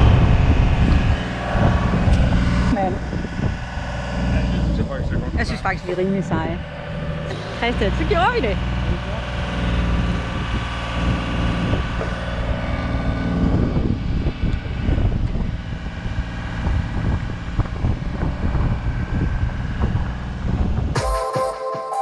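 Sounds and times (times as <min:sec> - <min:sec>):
boom lift power unit hum: 0:00.0 - 0:21.0
wind buffeting microphone: 0:00.0 - 0:21.0.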